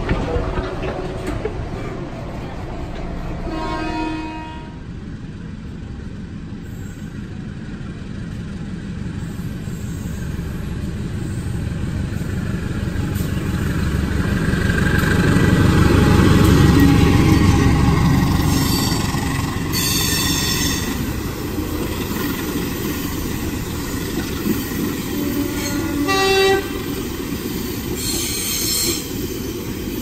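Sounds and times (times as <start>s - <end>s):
diesel locomotive passing: 0.0s - 30.0s.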